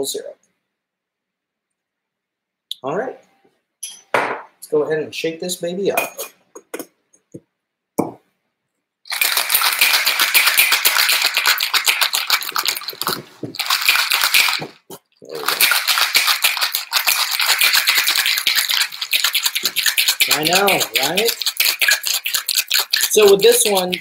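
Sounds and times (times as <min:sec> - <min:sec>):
ice rattling in metal shaker: 0:09.1 - 0:24.0.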